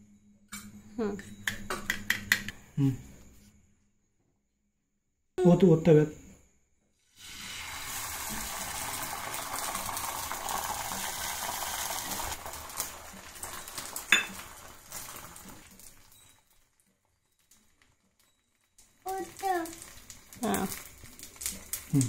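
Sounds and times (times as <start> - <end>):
egg sizzling in frying pan: 7.1 - 22.0.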